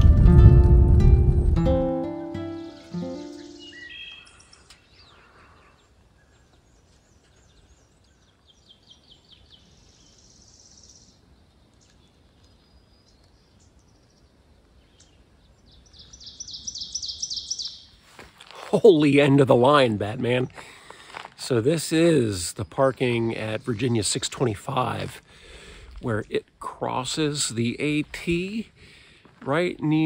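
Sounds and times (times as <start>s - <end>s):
songbirds chirping: 1.7s - 30.0s
buzzy bird trill: 2.4s - 5.0s, 15.9s - 17.9s.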